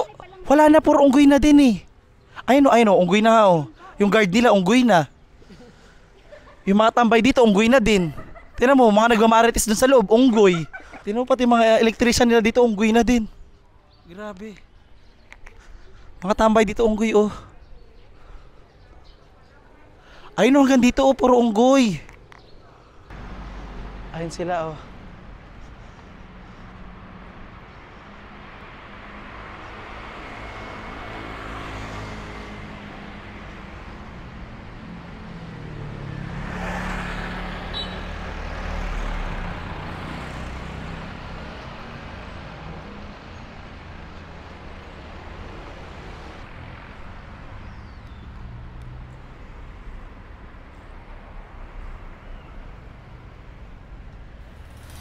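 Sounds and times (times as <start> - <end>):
vehicle engines running: 23.0 - 55.0
vehicle passing: 23.0 - 55.0.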